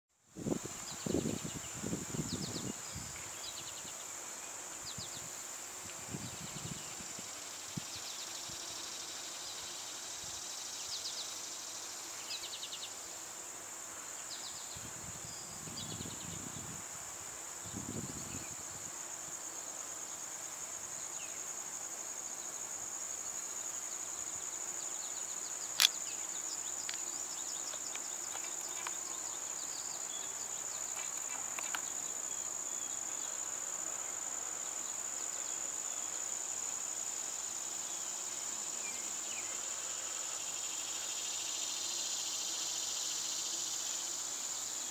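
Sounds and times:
insects singing: 17.6 - 44.9
sharp click: 25.8 - 26.0.

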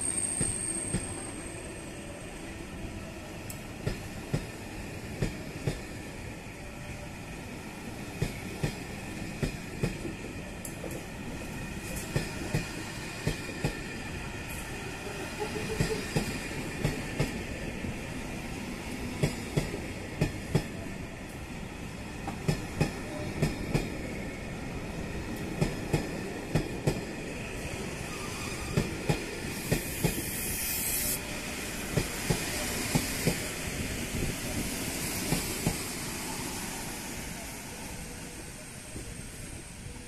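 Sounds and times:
short hiss: 29.8 - 31.2.

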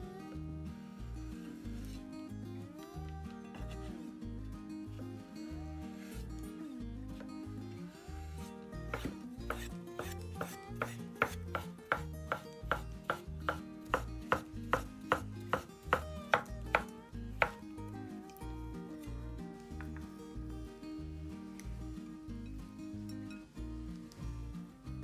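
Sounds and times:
knife chopping on cutting board: 8.9 - 17.6.

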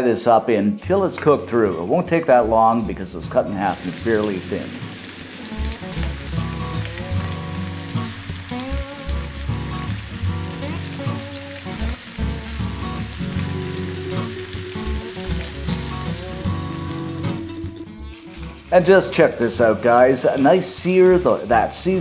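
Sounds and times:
chicken sizzling in oil: 3.4 - 22.0
background music with pulsing bass: 11.9 - 18.8.

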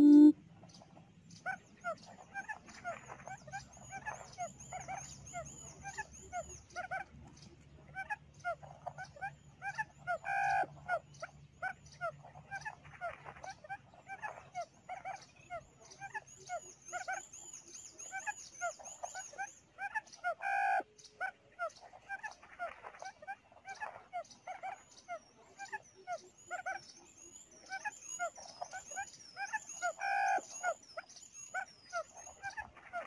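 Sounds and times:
quail chirps from speaker: 0.0 - 0.3, 19.8 - 21.3
harsh quail call: 9.6 - 11.0, 19.8 - 20.8, 29.4 - 30.8.

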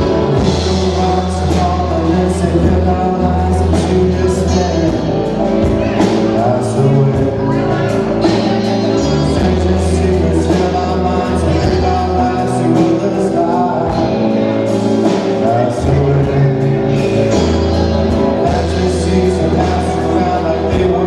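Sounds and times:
drums keeping a steady beat: 0.0 - 21.0
electric guitar: 0.0 - 21.0
keyboard: 0.0 - 21.0
lead vocal singing: 0.0 - 21.0.

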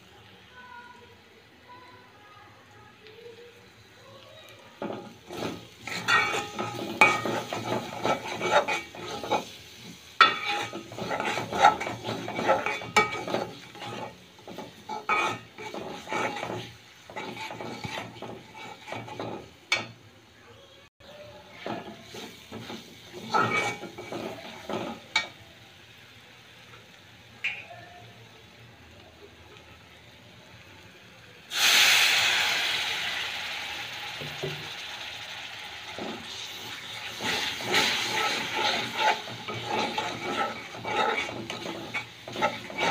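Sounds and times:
spice paste sizzling: 0.0 - 42.9
spatula scraping metal pan: 4.8 - 20.0, 21.6 - 25.4, 35.9 - 42.9.

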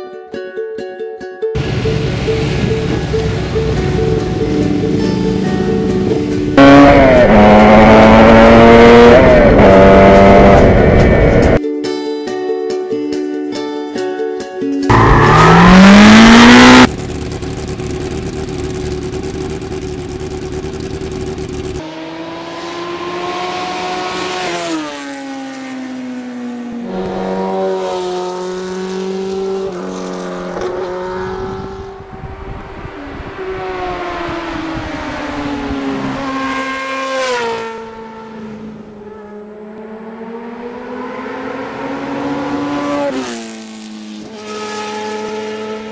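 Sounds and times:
steady rushing noise: 1.6 - 6.6
motorcycle engine revving: 1.6 - 11.6, 14.9 - 45.9.

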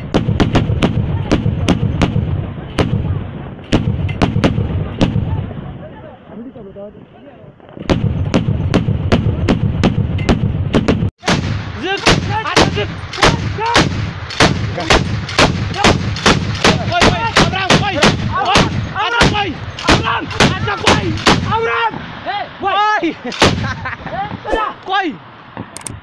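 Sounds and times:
machine gun firing: 7.9 - 21.5.

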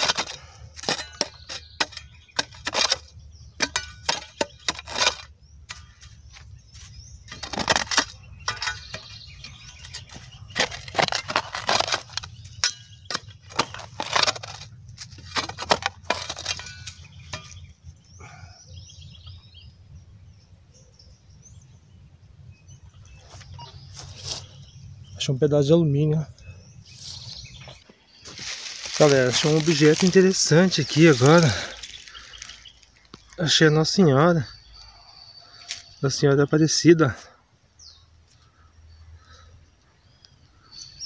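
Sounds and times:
hand shovel scraping soil: 0.0 - 17.7, 23.3 - 24.6, 26.9 - 32.8
faint outdoor background: 0.0 - 41.0.

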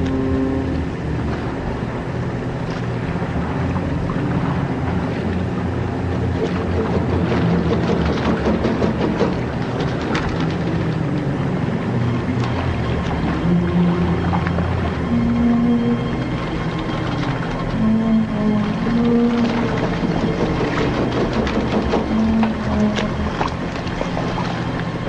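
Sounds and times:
steady low drone: 0.0 - 25.0
water sloshing: 0.0 - 25.0
paddle splashes and knocks: 2.6 - 11.6, 18.6 - 25.0.

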